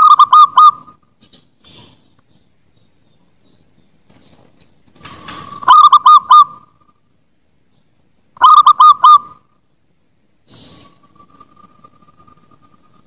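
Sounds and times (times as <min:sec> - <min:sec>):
dove cooing: 0:00.0 - 0:01.8, 0:05.4 - 0:06.9, 0:08.4 - 0:09.5.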